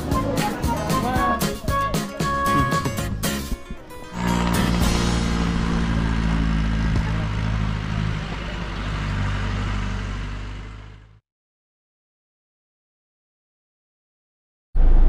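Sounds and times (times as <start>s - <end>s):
vehicle engine running: 4.0s - 11.2s.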